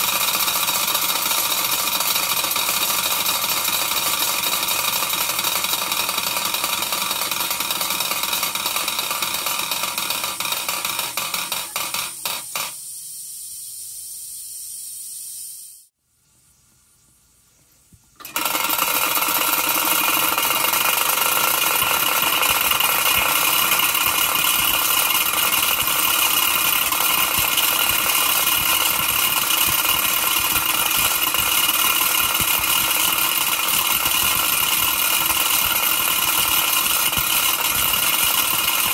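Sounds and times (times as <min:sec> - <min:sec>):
toy steam engine rattling: 0:00.0 - 0:13.0, 0:18.2 - 0:38.9
high steady whine: 0:19.7 - 0:38.9.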